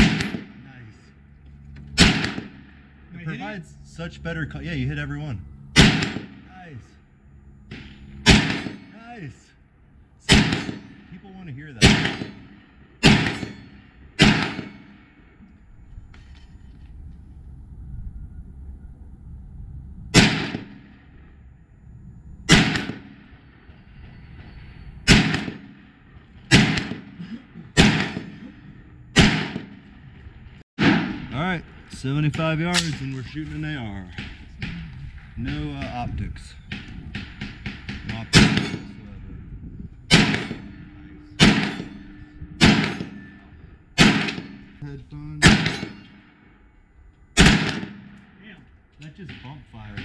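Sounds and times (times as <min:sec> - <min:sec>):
rifle shots: 0:00.0 - 0:00.8, 0:01.9 - 0:03.5, 0:05.8 - 0:06.6, 0:07.7 - 0:09.2, 0:10.2 - 0:15.3, 0:20.2 - 0:21.2, 0:22.5 - 0:23.7, 0:25.1 - 0:30.0, 0:30.8 - 0:31.5, 0:36.6 - 0:39.0, 0:40.1 - 0:44.8, 0:45.4 - 0:46.6, 0:47.4 - 0:48.3.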